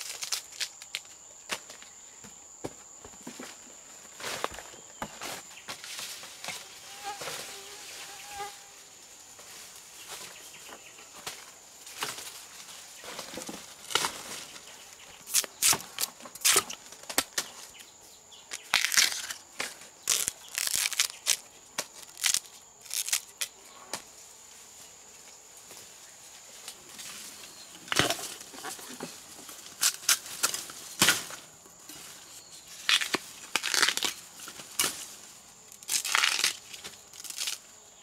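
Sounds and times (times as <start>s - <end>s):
vegetation rustling and crackling: 0.0s - 2.0s, 3.2s - 38.0s.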